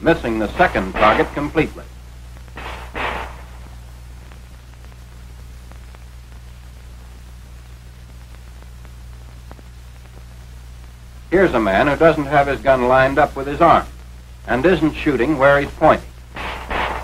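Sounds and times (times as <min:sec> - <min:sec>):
electrical hum: 0:00.0 - 0:17.0
film soundtrack hiss: 0:00.0 - 0:17.0
faint crackle clicks: 0:02.1 - 0:11.3
brief noisy burst: 0:02.6 - 0:03.6.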